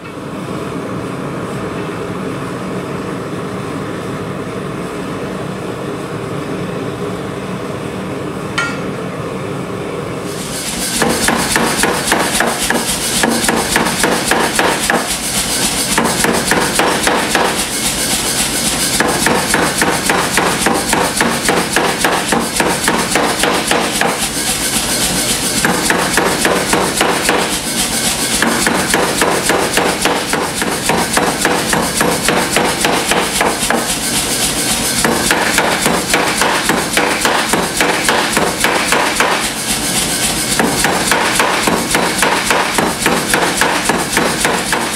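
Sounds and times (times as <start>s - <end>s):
gas forge burner roaring: 0.0s - 44.9s
power hammer pounding steel: 10.6s - 44.9s.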